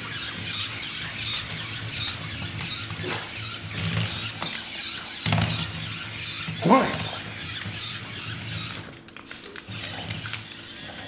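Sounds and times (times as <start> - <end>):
toy squealing: 0.0 - 8.8
toy motor whirring: 0.0 - 11.0.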